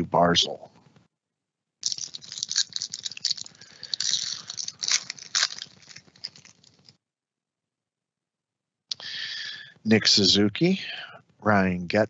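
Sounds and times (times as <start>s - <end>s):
plastic wrapper tearing and crinkling: 1.8s - 6.9s.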